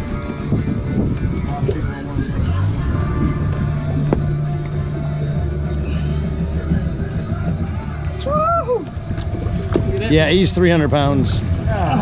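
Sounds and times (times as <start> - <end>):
music playing: 0.0 - 12.0
steady low hum: 0.0 - 12.0.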